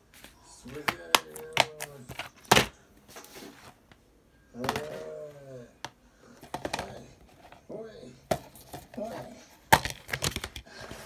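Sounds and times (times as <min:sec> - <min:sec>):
person murmuring: 0:04.6 - 0:05.8
plastic case clicking: 0:09.7 - 0:10.7.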